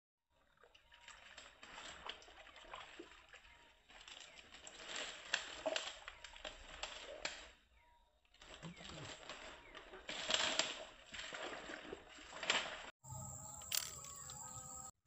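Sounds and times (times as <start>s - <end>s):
water sloshing: 0.4s - 7.6s, 8.3s - 14.9s
dry palm fronds crackling: 3.9s - 7.6s, 8.4s - 11.6s, 12.2s - 14.8s.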